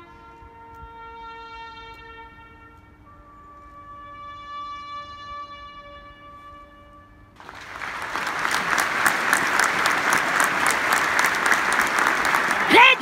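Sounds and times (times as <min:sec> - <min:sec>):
crowd applause: 0:07.4 - 0:13.0.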